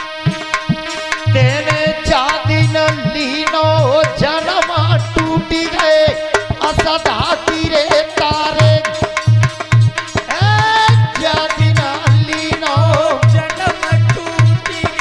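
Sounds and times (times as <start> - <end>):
steady drone note: 0.0 - 6.6
hand drum playing: 0.2 - 15.0
man singing folk song: 1.3 - 9.1, 10.3 - 15.0.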